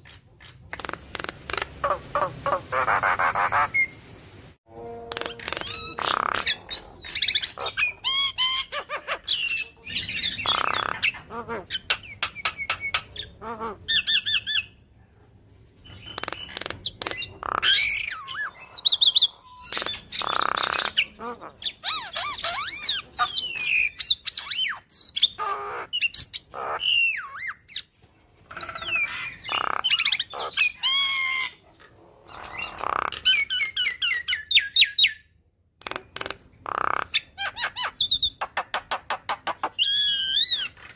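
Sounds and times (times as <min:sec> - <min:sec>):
bird singing chattering song: 0:05.1 - 0:14.8, 0:15.8 - 0:27.9, 0:28.6 - 0:31.6.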